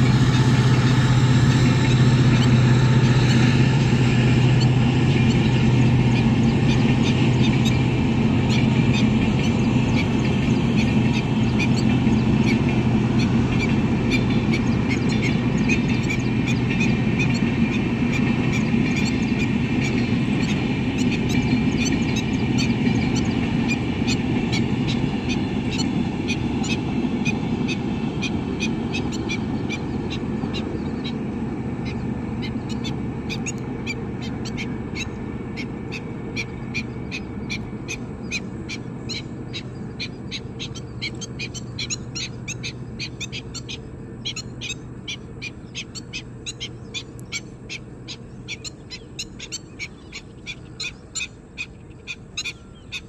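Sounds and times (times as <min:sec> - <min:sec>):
bird calling in high notes: 0:00.0 - 0:53.0
train rumbling on track: 0:00.0 - 0:53.0.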